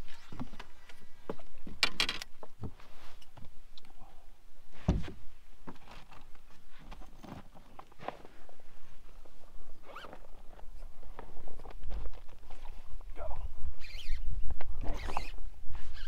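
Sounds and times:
dull thump: 0:04.8 - 0:05.2.

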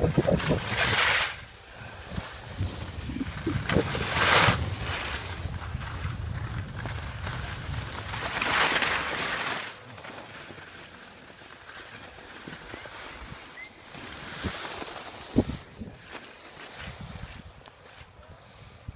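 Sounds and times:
wind buffeting microphone: 0:00.0 - 0:08.3
skis scraping over snow: 0:00.0 - 0:18.9.

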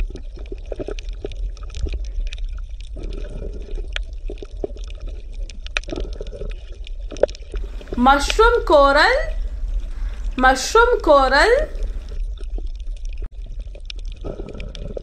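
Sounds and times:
reef clicks and crackles: 0:00.0 - 0:08.0
low underwater rumble: 0:07.6 - 0:08.0, 0:09.4 - 0:10.4.

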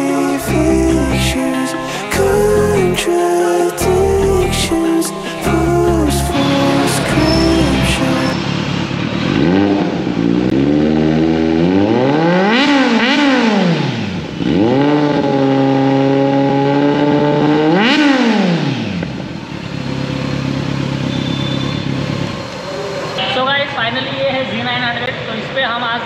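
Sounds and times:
motorcycle engine revving: 0:05.8 - 0:23.2.

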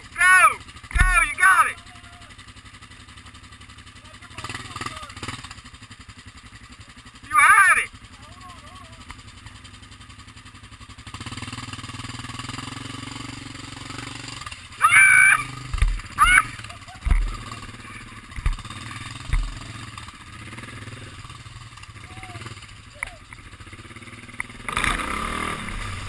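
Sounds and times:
person yelling: 0:00.0 - 0:02.4, 0:07.2 - 0:09.0, 0:14.7 - 0:17.4, 0:22.0 - 0:23.3
atv engine running: 0:00.0 - 0:26.0
vehicle thumping over rocks: 0:15.6 - 0:16.2, 0:17.0 - 0:17.4, 0:18.3 - 0:19.7.

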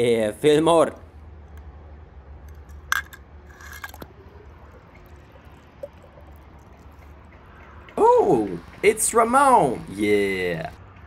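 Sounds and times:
low steady hum: 0:00.0 - 0:10.8
toy bus clicking on stone: 0:02.4 - 0:09.4
toy plopping into water: 0:04.8 - 0:06.9.

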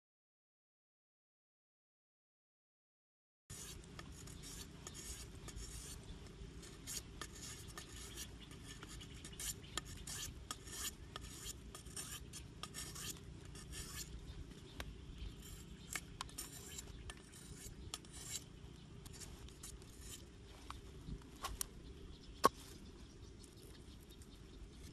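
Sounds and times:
blade scraping bamboo stick: 0:03.5 - 0:21.7
low steady rumble: 0:09.7 - 0:24.9.

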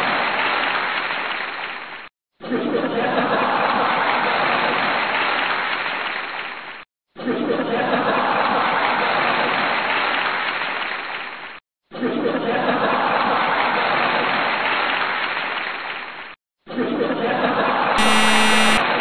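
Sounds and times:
applause: 0:00.0 - 0:02.1, 0:03.6 - 0:06.8, 0:08.2 - 0:11.6, 0:13.0 - 0:16.4
crowd laughter: 0:02.7 - 0:04.1, 0:07.3 - 0:08.8, 0:12.2 - 0:13.6
electronic buzzer tone: 0:18.0 - 0:18.9.

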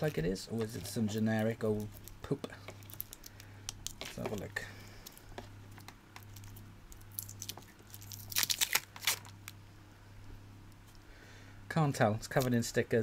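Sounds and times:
tape crinkling and tearing: 0:02.8 - 0:09.6.

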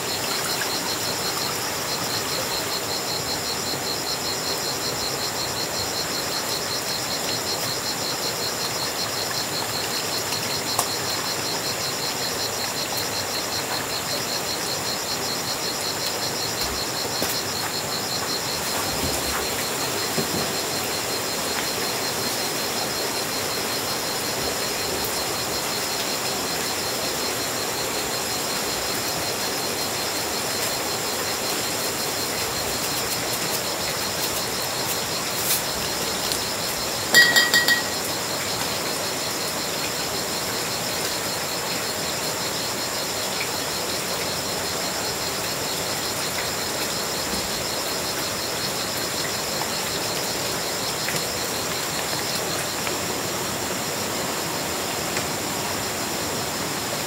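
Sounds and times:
insects trilling: 0:00.0 - 0:57.0.

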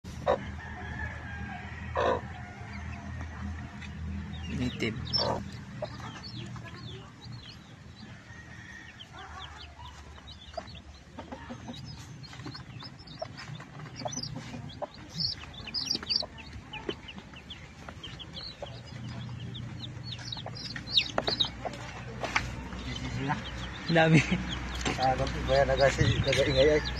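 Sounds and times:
chicks peeping: 0:00.1 - 0:26.9.

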